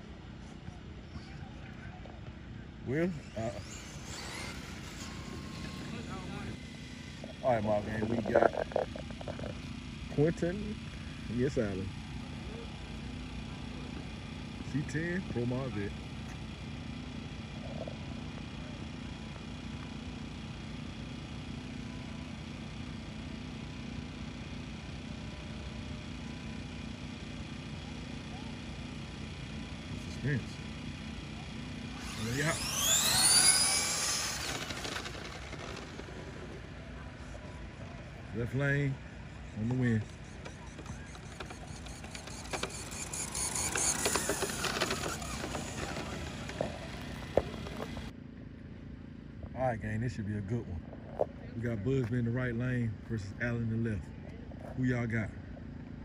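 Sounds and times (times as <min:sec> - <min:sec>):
low mechanical hum: 0:00.0 - 0:56.0
electric motor and gears whirring: 0:02.9 - 0:20.1, 0:26.8 - 0:37.4, 0:38.3 - 0:48.2.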